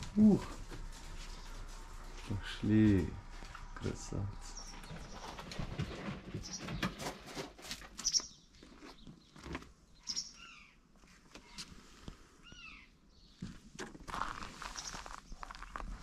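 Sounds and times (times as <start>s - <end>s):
rustling: 0.0s - 3.8s, 13.4s - 16.0s
high chirping calls: 10.0s - 10.8s.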